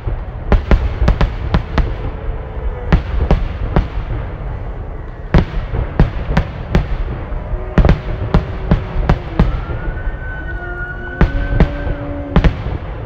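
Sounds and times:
low rumble: 0.0 - 13.0
steady held tones: 6.6 - 12.4.

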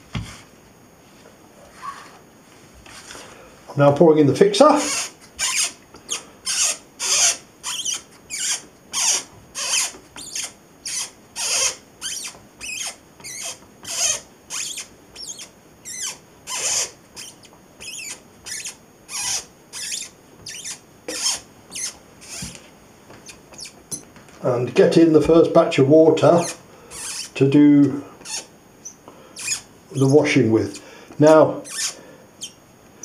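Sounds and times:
developing tank handle squeaking: 4.8 - 22.6, 23.2 - 24.1, 26.2 - 27.4, 28.2 - 30.4, 31.6 - 32.6.

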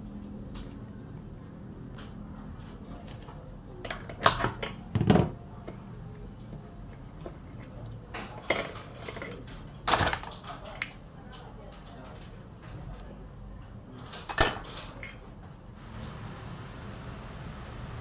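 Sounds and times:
metal parts clinking and knocking: 7.1 - 10.9, 14.1 - 15.2.

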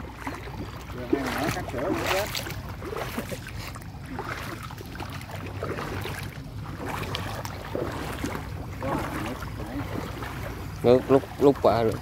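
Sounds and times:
faint moving water: 0.0 - 12.0.

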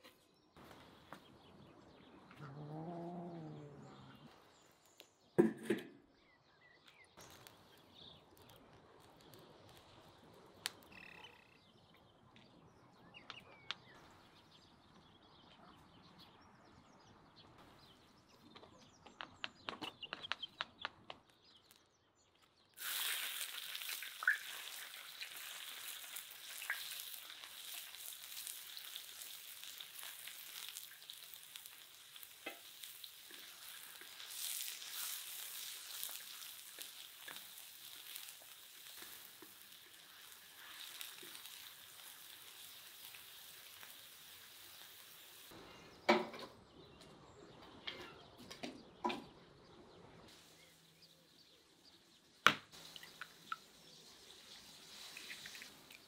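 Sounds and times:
vegetables sizzling in hot oil: 22.8 - 45.6.

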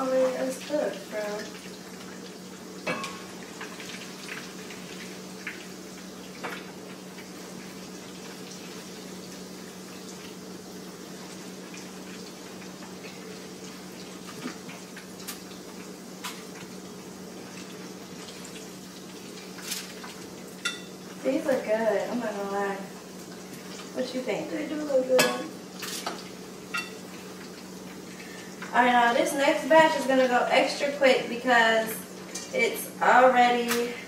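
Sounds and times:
chicken sizzling in oil: 0.0 - 34.0.

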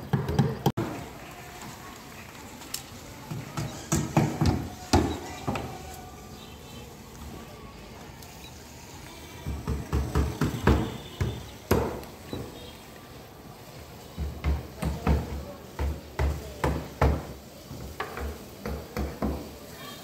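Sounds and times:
knocks and thumps: 0.0 - 0.9, 3.3 - 5.7, 9.4 - 12.5, 14.2 - 19.5.

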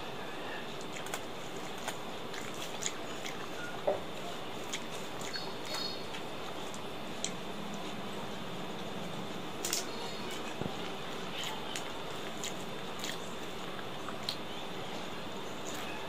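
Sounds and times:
chewing: 0.7 - 8.0, 9.6 - 16.0.

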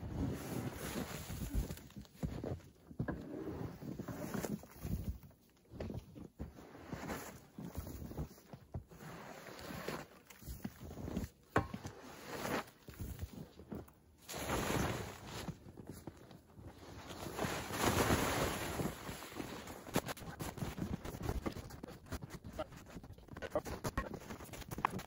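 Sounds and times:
rake scraping snow off fabric: 11.8 - 13.0, 14.2 - 15.6, 17.0 - 21.6.

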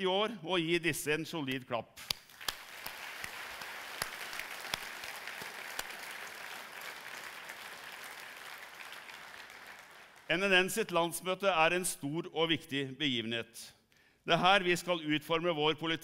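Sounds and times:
audience applauding: 2.3 - 10.3.

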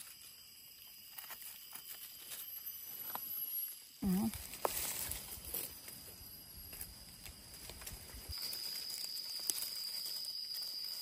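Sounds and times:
dry leaf litter rustling: 4.0 - 6.2, 6.8 - 11.0.

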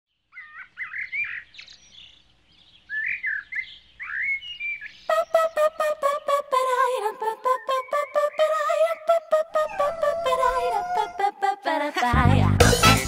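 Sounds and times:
birds chirping: 0.1 - 11.4
funk music with fast beat: 12.1 - 13.0.

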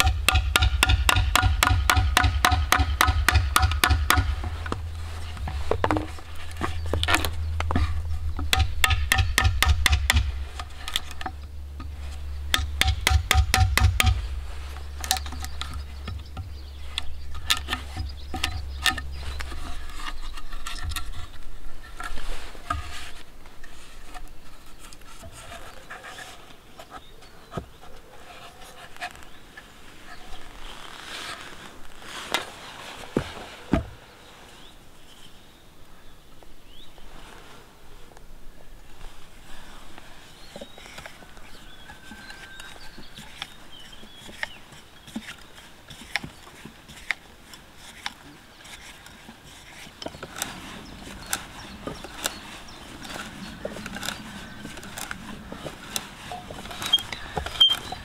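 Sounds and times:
chisel cracking wood: 0.0 - 4.8, 8.4 - 11.3.

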